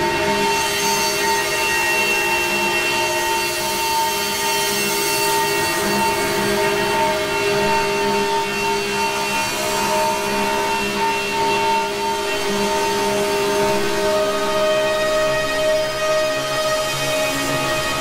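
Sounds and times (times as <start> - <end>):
dense drone of held tones: 6.0 - 18.0.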